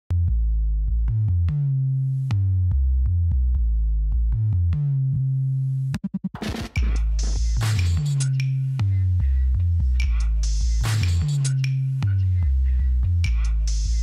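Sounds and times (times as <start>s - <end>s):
synthesizer bass line: 0.1s - 14.0s
drum-machine beat: 6.0s - 14.0s.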